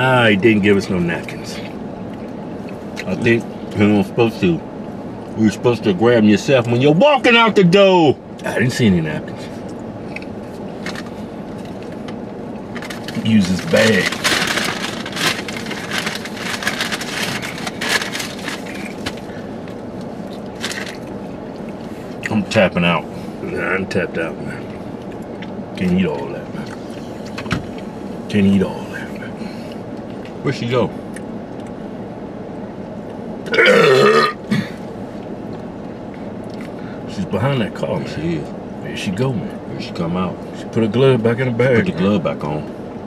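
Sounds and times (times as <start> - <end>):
car cabin hum: 0.0 - 43.0
food packaging crinkling: 12.8 - 19.2
man belching loudly: 33.5 - 34.6.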